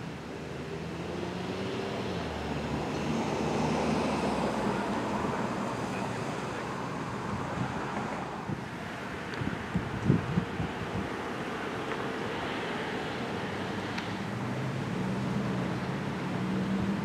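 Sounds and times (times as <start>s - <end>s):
vehicle engine and tyre noise: 0.0s - 17.0s
wind on microphone: 7.2s - 11.2s.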